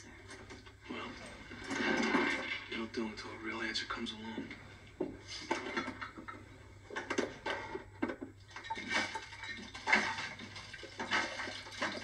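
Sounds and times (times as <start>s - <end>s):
dishes and frozen items clinking: 5.4s - 12.0s.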